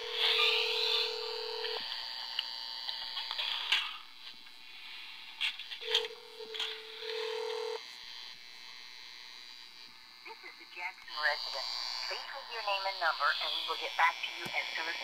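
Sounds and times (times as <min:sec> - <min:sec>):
telephone ringback tone: 0:00.0 - 0:01.8, 0:05.8 - 0:07.8
phone line hiss: 0:00.0 - 0:01.9, 0:05.8 - 0:07.8.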